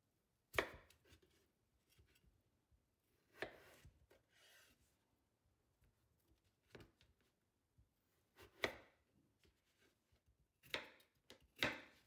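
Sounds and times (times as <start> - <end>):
knife cutting potatoes: 0.5 - 2.2, 3.2 - 4.8, 8.3 - 9.9, 10.6 - 12.0.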